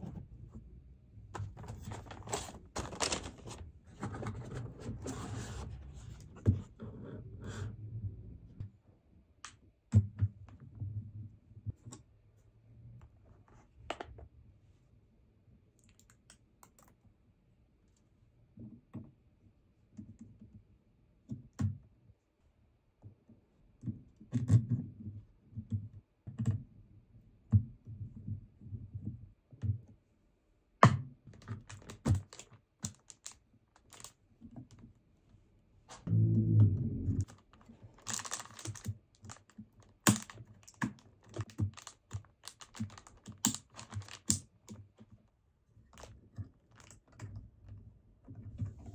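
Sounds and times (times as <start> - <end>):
hands handling computer parts: 1.4 - 6.5.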